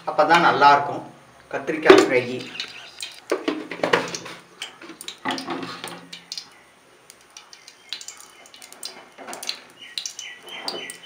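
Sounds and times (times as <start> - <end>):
pan knocking and scraping: 3.3 - 6.0
small ticks: 6.2 - 10.3.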